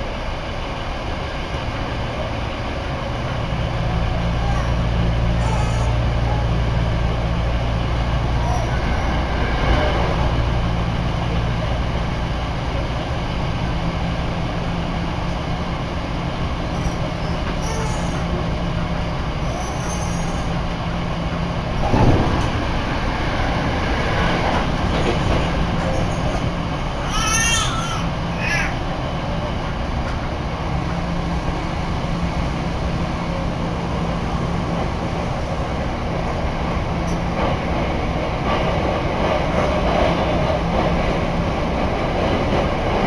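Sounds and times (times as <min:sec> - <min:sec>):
train wheels rumbling on rails: 0:00.0 - 0:43.0
train carriage bump: 0:16.8 - 0:18.6, 0:21.2 - 0:28.1.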